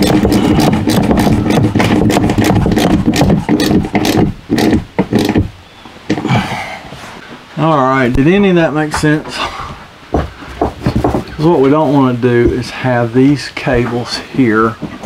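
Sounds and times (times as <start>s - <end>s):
metal cables clicking and rattling: 0.0s - 5.4s.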